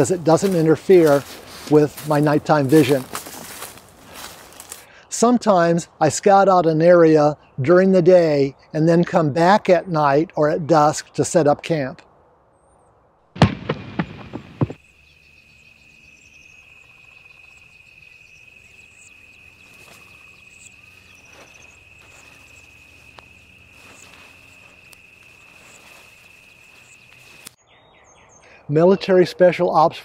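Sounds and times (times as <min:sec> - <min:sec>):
rustling through brush: 0:00.0 - 0:04.9, 0:18.6 - 0:27.6
insect trill: 0:14.4 - 0:27.6.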